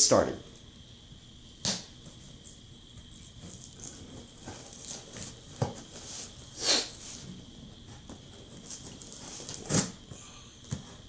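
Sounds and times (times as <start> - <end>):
scissors scraping packing tape: 8.6 - 10.0.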